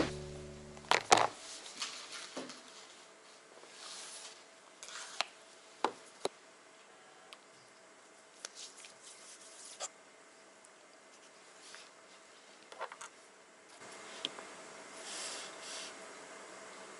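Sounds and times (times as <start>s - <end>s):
background music: 0.0s - 1.2s.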